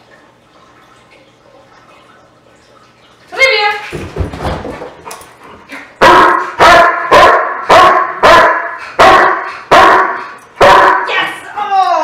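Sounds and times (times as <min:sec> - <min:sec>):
dog barking: 0:06.0 - 0:11.1.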